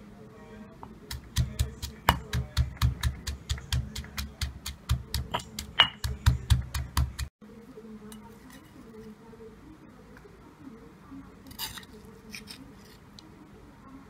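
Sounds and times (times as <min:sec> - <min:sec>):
stone pestle pounding in mortar: 0:01.1 - 0:07.3.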